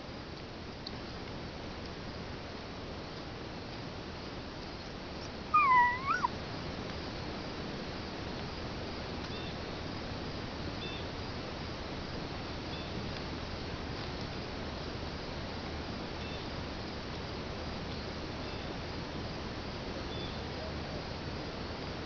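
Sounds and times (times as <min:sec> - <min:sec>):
outdoor background noise: 0:00.0 - 0:22.0
high animal call: 0:05.5 - 0:06.4.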